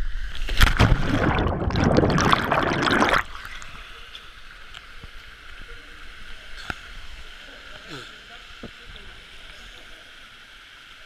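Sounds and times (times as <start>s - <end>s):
water splashing and churning: 0.4s - 3.7s.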